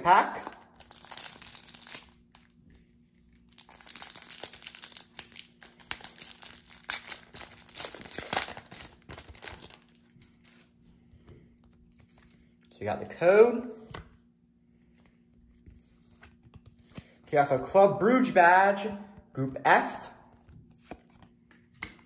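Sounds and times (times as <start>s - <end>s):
foil wrapper tearing and crinkling: 0.4s - 2.5s, 3.5s - 10.6s.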